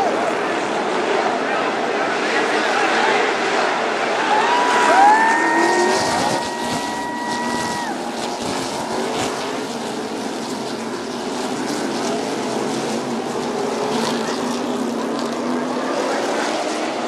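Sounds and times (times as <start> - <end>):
race car engines passing: 0.0 - 17.0.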